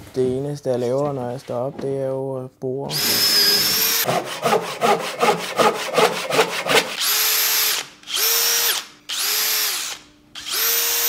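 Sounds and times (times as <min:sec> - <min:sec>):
rhythmic rasping strokes: 0:02.9 - 0:07.0
cordless drill whining: 0:02.9 - 0:11.0.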